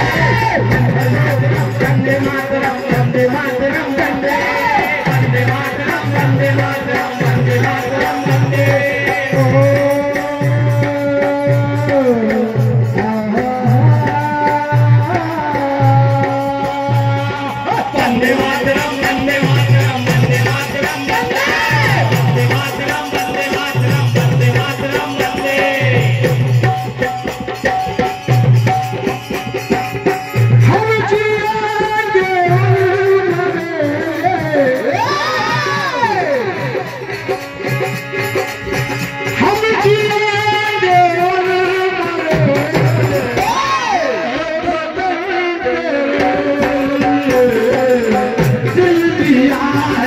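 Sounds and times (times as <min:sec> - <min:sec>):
hand drum beat: 0:00.0 - 0:44.8
person singing: 0:30.6 - 0:37.3, 0:39.4 - 0:50.0.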